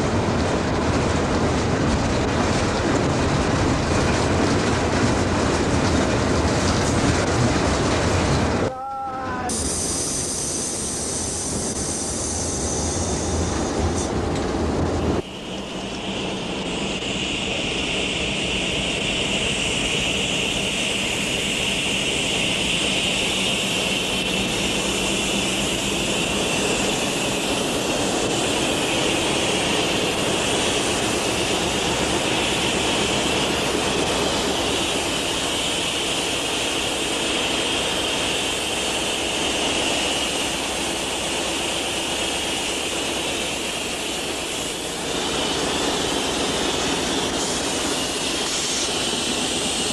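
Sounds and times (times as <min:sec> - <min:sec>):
locomotive engine running: 0:00.0 - 0:49.9
high whine: 0:15.0 - 0:49.9.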